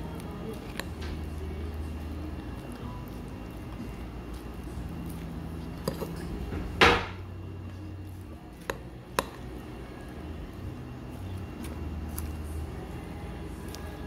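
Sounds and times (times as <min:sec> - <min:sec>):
low steady hum: 0:00.0 - 0:14.0
tableware clatter: 0:05.8 - 0:07.2.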